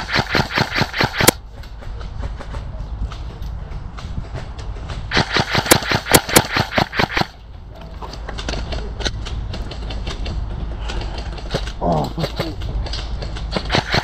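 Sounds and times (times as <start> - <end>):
airsoft rifle shots: 0.0 - 1.4, 5.1 - 7.4, 13.5 - 14.0
wind rumble on microphone: 1.3 - 5.2.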